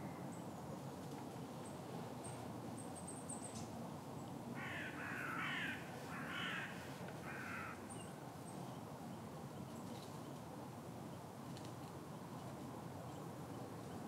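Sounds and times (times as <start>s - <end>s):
crow cawing: 4.6s - 7.9s.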